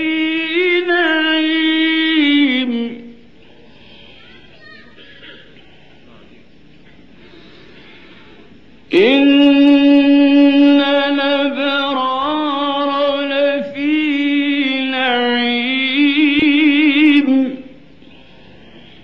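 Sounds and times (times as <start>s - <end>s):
man reciting melodically: 0.0s - 3.2s, 8.9s - 18.0s
faint tape hiss: 0.0s - 19.0s.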